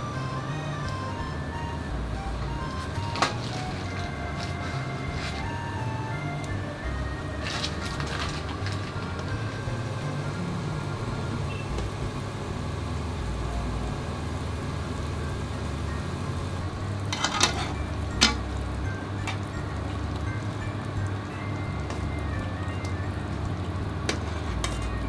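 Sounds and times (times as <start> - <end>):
light background music: 0.0 - 25.0
metal turner scraping frying pan: 2.8 - 5.6, 17.1 - 18.4, 24.0 - 25.0.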